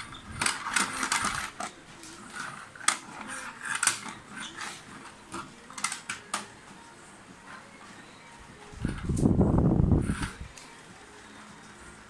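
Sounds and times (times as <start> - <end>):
plastic toy clattering on wood: 0.0 - 6.5.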